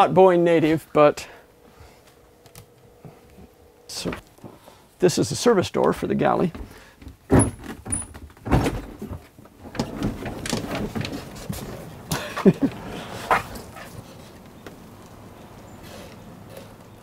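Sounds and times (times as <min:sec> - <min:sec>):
heavy door clunks and knocks: 0:06.6 - 0:11.1.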